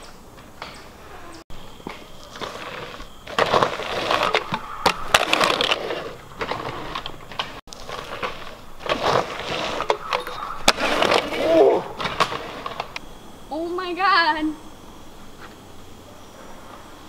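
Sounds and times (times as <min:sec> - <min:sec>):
dirt and grit crunching: 0:00.0 - 0:13.6.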